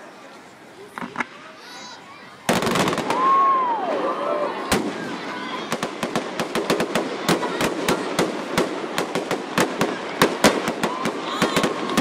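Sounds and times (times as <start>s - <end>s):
fireworks bangs and pops: 2.5s - 3.5s, 4.7s - 12.0s.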